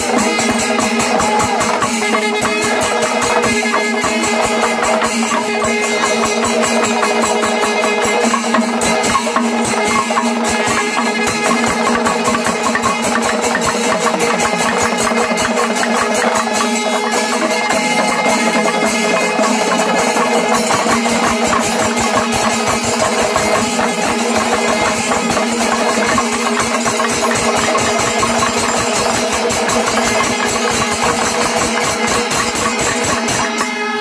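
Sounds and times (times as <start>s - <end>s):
fast drum strokes: 0.0s - 33.9s
horns blaring: 32.9s - 34.0s.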